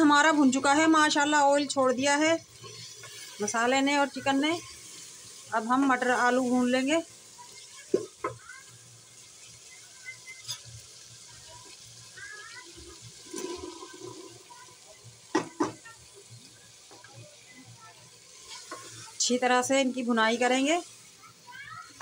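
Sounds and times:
vegetables poured into pot: 13.2s - 14.6s.

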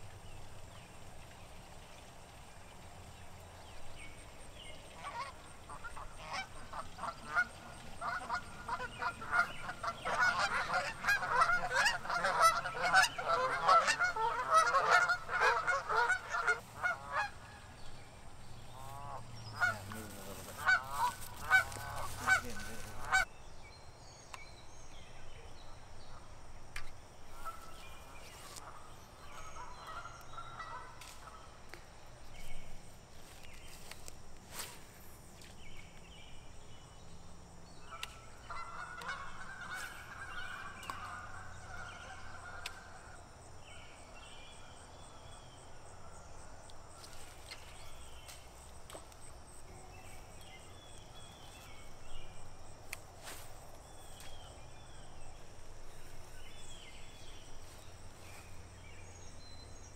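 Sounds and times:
flock of birds calling: 4.8s - 17.9s, 18.6s - 23.3s, 37.8s - 43.2s.

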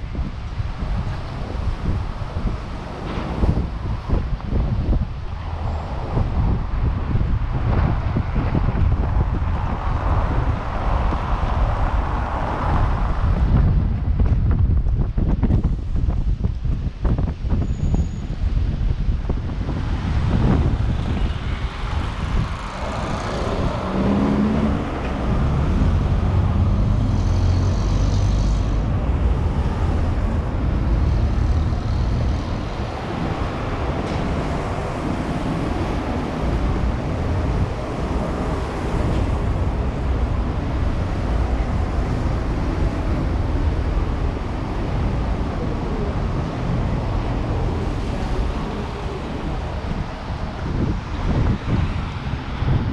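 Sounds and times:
heavy low rumble: 0.0s - 17.6s
cars passing on a wet road: 0.0s - 52.9s.

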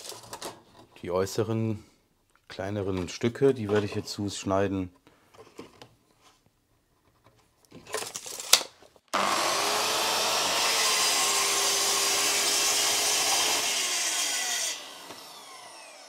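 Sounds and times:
circular saw cutting board: 9.1s - 16.0s.

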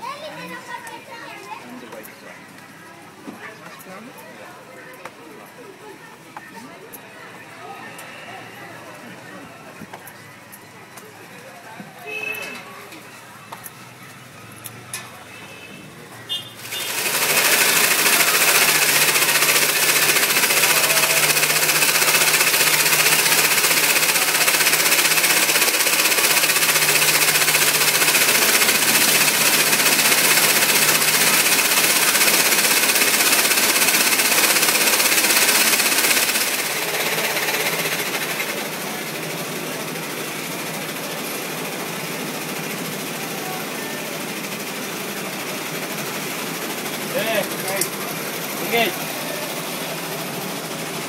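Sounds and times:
industrial sewing machine running: 16.6s - 51.0s.

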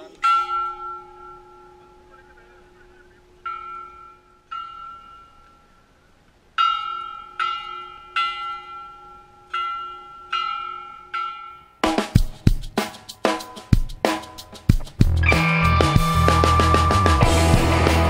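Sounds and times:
large temple bell ringing: 0.0s - 5.9s, 6.6s - 11.8s.

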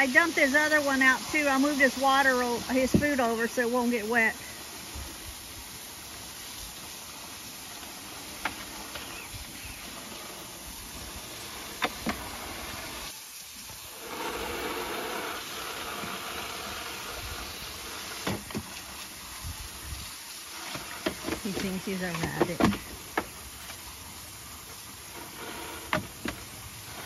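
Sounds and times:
garden hose spraying water: 0.0s - 27.0s.

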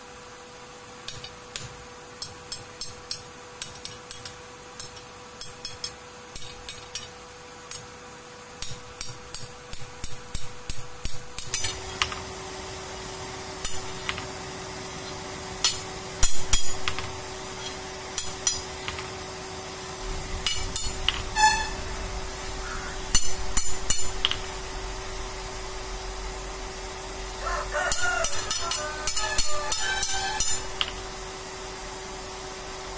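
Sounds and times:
hammer striking metal on anvil: 1.1s - 7.8s, 8.6s - 12.2s, 13.6s - 14.3s, 15.0s - 19.2s, 20.3s - 21.8s, 22.7s - 24.6s, 27.8s - 31.0s.

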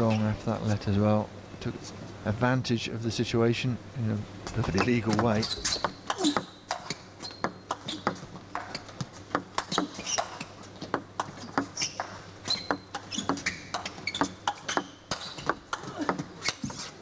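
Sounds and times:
shoes squeaking on floor: 4.5s - 17.0s
table tennis ball hits: 4.8s - 16.6s.

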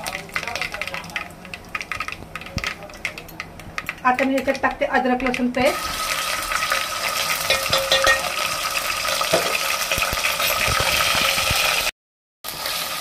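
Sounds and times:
paste sizzling in hot oil: 5.7s - 11.9s, 12.5s - 13.0s.

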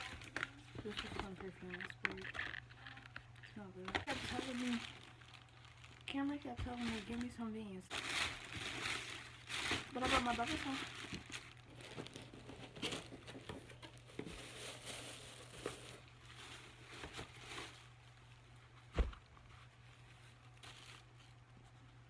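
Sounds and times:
wrapping paper rustling: 0.0s - 22.0s
thump: 18.9s - 19.2s.

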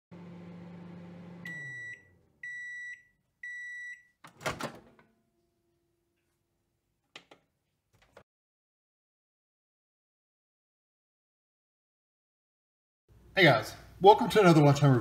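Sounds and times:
microwave oven humming: 0.1s - 3.8s
microwave long beeps: 0.4s - 4.2s
microwave door unlatching clunk: 4.3s - 5.0s.

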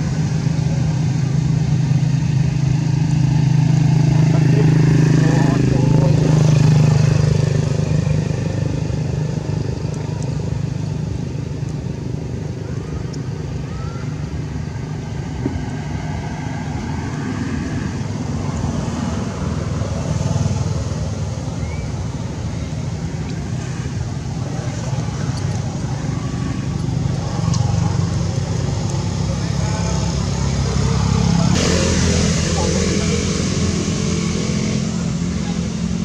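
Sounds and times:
vehicle engine hum: 0.0s - 36.0s.

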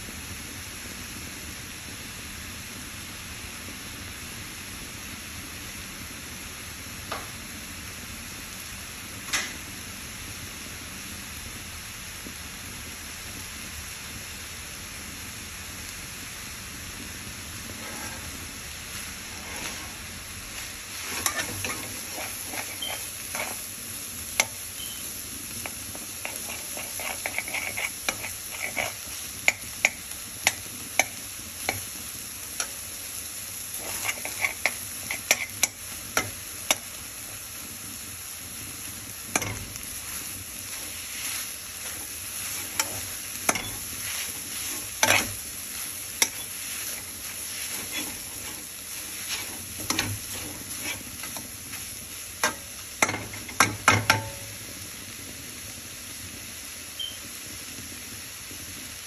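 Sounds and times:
meat sizzling in a frying pan: 0.0s - 59.0s
metal spoon clicking against pan: 29.5s - 31.8s.

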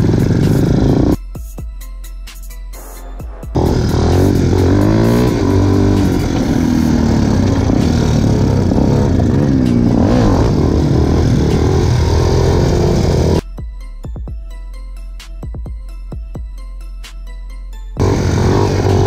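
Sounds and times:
quad engine revving: 0.0s - 1.2s, 3.6s - 13.4s, 18.0s - 19.0s.

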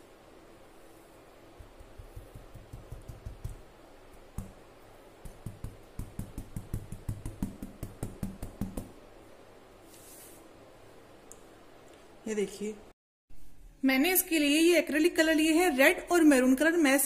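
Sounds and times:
sharp knocks on plywood board: 5.2s - 8.9s.

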